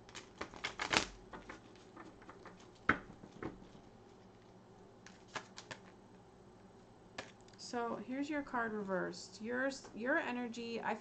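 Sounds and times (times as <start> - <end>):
cards clicking: 5.0 - 6.0.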